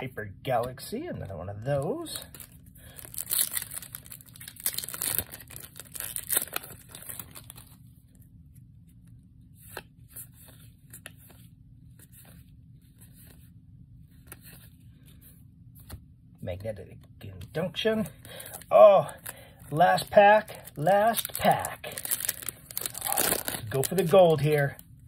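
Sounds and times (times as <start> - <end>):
trading cards rustling: 1.6 - 16.1, 17.5 - 25.0
foil wrapper crinkling and tearing: 2.1 - 7.8, 18.2 - 24.8.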